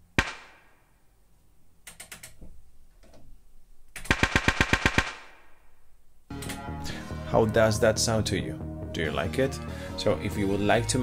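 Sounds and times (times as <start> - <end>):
synthesized gunshots with reverb: 0.1 - 0.9, 4.1 - 5.8.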